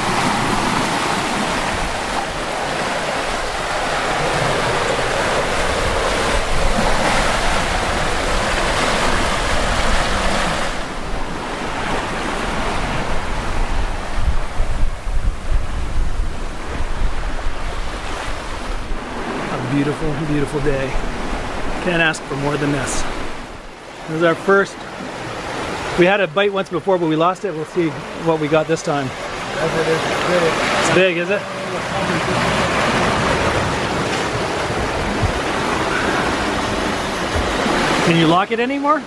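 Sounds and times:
wind buffeting microphone: 0.0s - 23.8s, 32.0s - 38.2s
water rushing past hulls: 0.0s - 39.0s.

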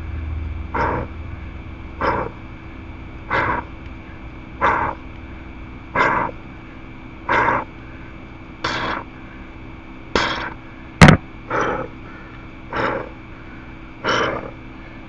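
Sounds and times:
forceful breaths or grunts: 0.8s - 1.1s, 2.0s - 2.4s, 3.3s - 3.7s, 4.6s - 5.0s, 6.0s - 6.4s, 7.3s - 7.7s, 8.7s - 9.1s, 10.2s - 13.2s, 14.0s - 14.6s
sharp knock: 10.2s - 11.2s.

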